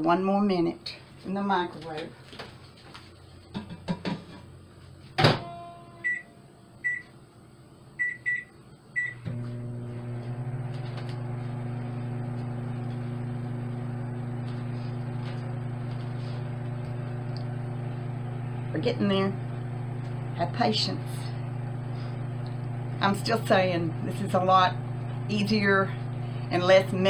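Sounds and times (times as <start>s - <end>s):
microwave oven humming: 3.2s - 27.0s.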